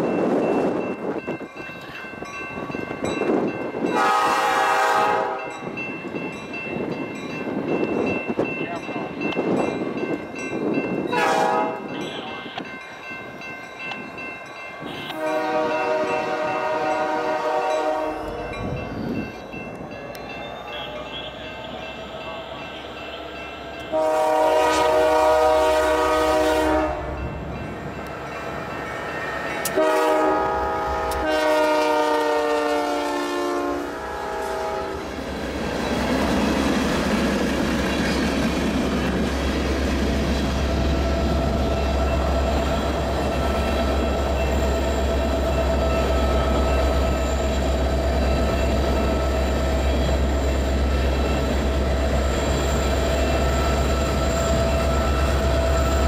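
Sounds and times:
train wheels on rails: 0.0s - 56.0s
locomotive horn blasts: 3.9s - 5.6s, 11.1s - 12.7s, 14.8s - 18.4s, 22.6s - 27.3s, 29.6s - 35.1s.

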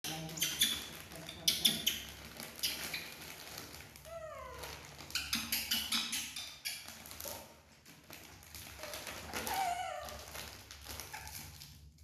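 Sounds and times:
plastic wrapper crinkling: 0.1s - 5.3s, 6.7s - 12.0s
baby monkey whining cry: 9.3s - 10.3s.

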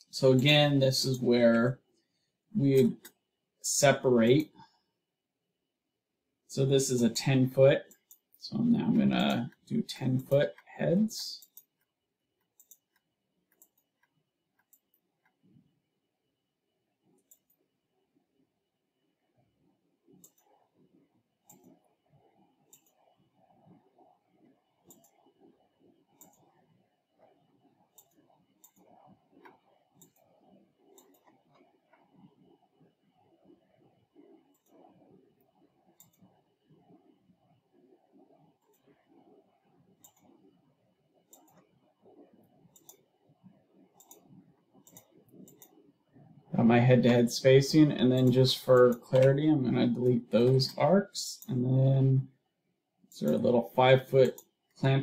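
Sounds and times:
computer mouse clicks: 2.8s - 3.2s, 7.6s - 8.4s, 9.0s - 15.5s, 17.2s - 17.7s, 20.1s - 46.5s, 47.8s - 50.8s, 53.1s - 54.8s
faint computer mouse clicks: 11.4s - 15.4s, 24.8s - 25.2s, 30.9s - 32.0s, 36.0s - 36.3s, 42.7s - 43.0s, 44.0s - 45.8s.

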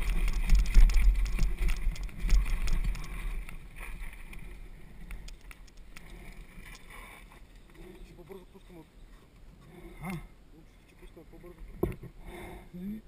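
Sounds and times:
wind buffeting microphone: 0.0s - 3.7s
bike rattling over ground: 0.0s - 4.6s.

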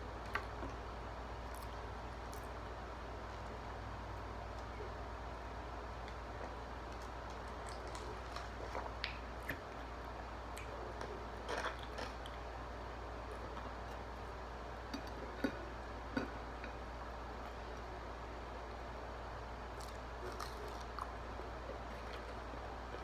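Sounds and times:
steady low hum: 0.0s - 23.0s
chewing mouth noises: 19.8s - 23.0s.

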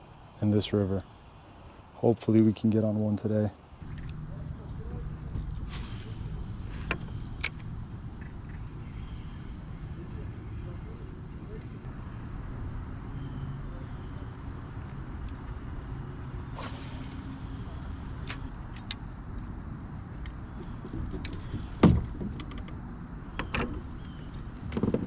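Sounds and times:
steady low rumble: 3.8s - 13.1s
short swish: 16.5s - 18.2s.

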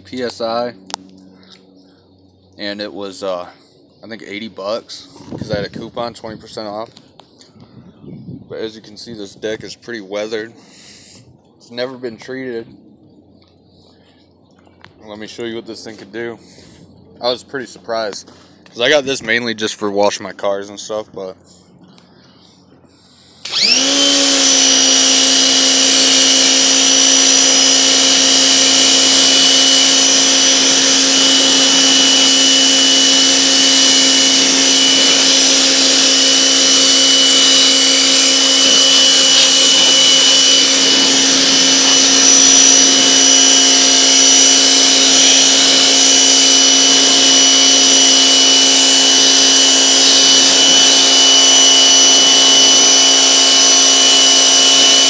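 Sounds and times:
pressure washer motor whine: 23.0s - 55.0s.

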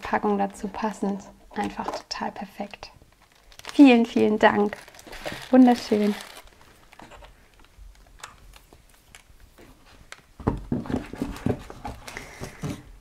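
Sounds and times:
paper packages knocking and rustling: 3.1s - 7.7s, 9.6s - 13.0s.

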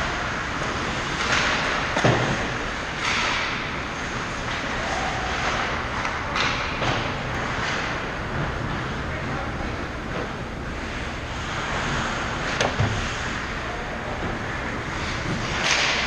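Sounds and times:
stick and puck clatter: 0.4s - 8.8s, 9.7s - 16.0s
skates scraping on ice: 10.7s - 13.6s.

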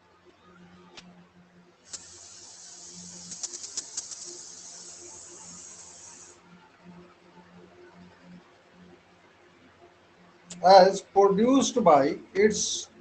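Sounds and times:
crackles: 0.0s - 9.0s
steady high hiss: 1.8s - 13.0s.

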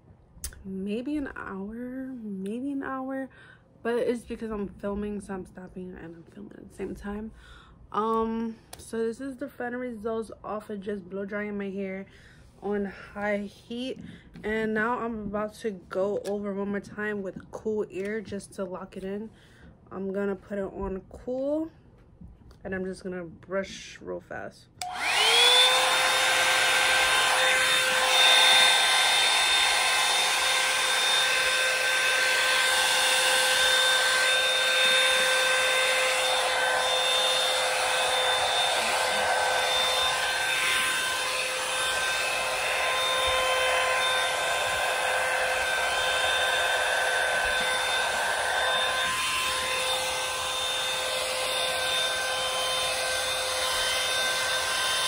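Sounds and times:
hot air brush motor whine: 24.8s - 55.0s
rushing air: 35.8s - 51.6s.

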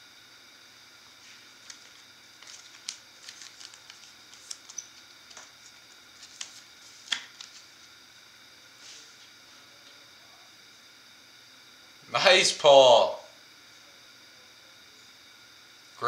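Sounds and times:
plastic sleeve crinkling: 1.2s - 7.8s.

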